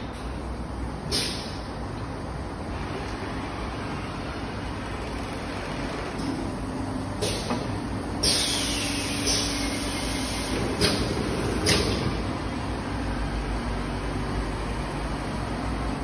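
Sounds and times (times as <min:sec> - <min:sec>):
packing machine humming: 0:00.0 - 0:16.0
short sharp air hisses: 0:01.1 - 0:01.6, 0:08.2 - 0:12.1.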